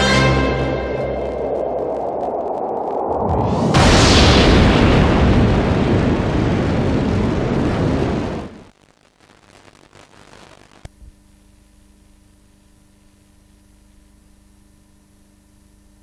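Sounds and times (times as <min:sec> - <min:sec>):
tape hiss and hum: 0:00.0 - 0:16.0
loud rushing rumble: 0:00.4 - 0:08.6.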